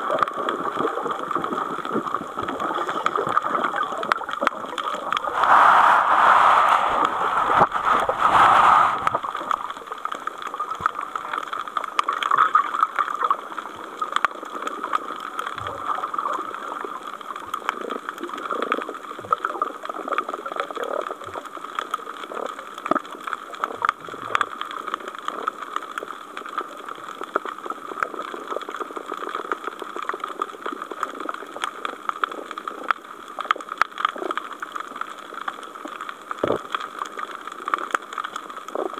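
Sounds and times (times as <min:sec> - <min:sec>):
watery rush: 0:05.0 - 0:10.1
underwater hiss: 0:05.1 - 0:10.1.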